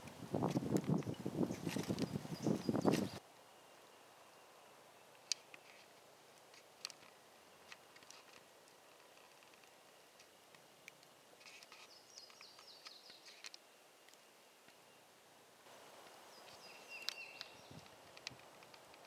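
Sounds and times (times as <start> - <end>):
outdoor background hiss: 0.0 - 19.0
faint bird chirps: 11.4 - 15.1, 16.1 - 17.9.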